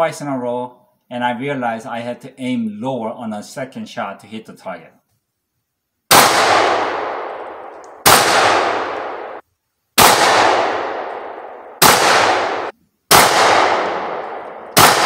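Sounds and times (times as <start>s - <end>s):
shotgun shots with echo: 6.1s - 9.4s, 10.0s - 15.0s.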